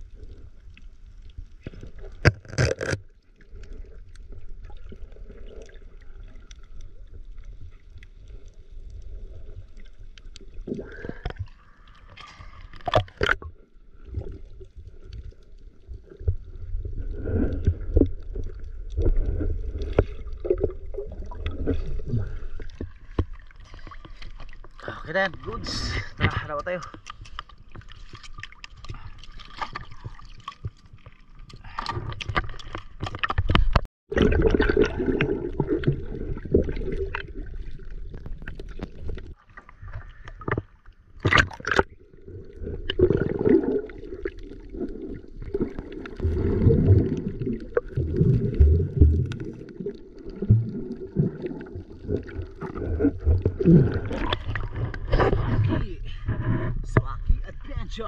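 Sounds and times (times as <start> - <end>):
muffled underwater gurgling: 41.3 - 58.0.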